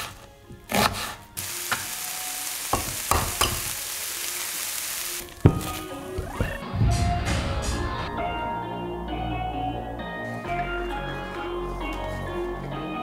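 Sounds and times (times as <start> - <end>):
onion sizzling in frying pan: 1.4 - 6.6.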